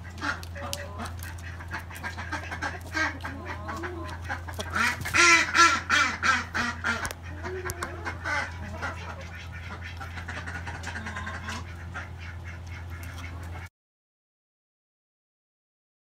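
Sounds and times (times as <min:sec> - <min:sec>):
hens clucking and calling: 0:00.0 - 0:13.7.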